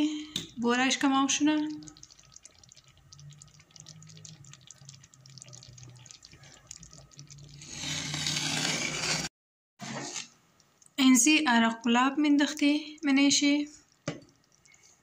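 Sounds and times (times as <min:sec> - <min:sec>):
low steady hum: 0:00.0 - 0:07.7
bubbles popping in simmering pot: 0:00.2 - 0:07.8, 0:10.6 - 0:15.0.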